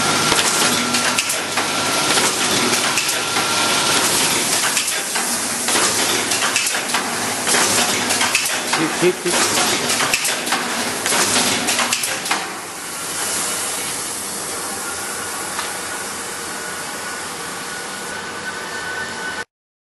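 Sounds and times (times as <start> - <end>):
machine hiss with high whine: 0.0 - 19.4
machine clattering clicks: 0.3 - 3.4, 4.3 - 12.6.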